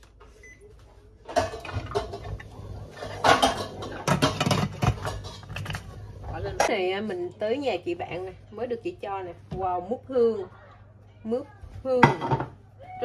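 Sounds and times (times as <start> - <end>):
metal pot and lid clattering: 1.3 - 5.8.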